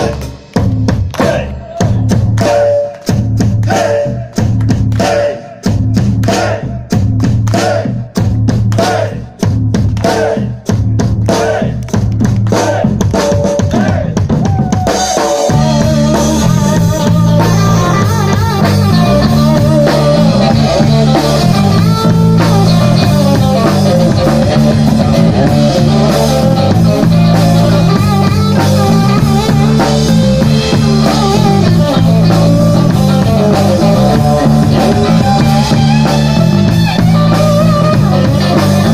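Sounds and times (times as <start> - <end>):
live rock band playing: 0.0 - 38.9
repeating bass line: 15.2 - 38.9.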